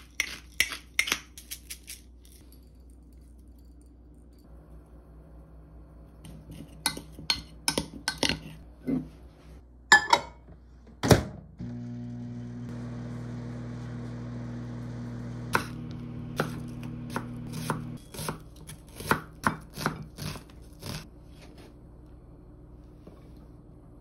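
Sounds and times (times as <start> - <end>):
microwave humming: 9.8 - 18.4
knife chopping on wooden board: 16.4 - 21.0.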